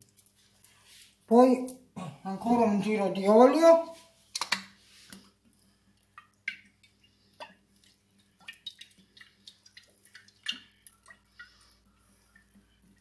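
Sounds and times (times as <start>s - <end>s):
oil drips and plops: 4.4s - 13.0s.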